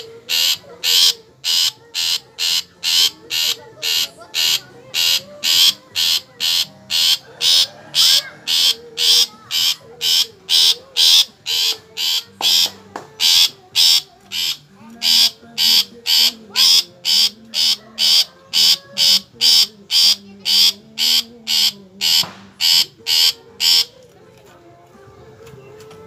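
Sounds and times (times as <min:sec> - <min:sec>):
bird giving harsh calls: 0:00.0 - 0:23.9.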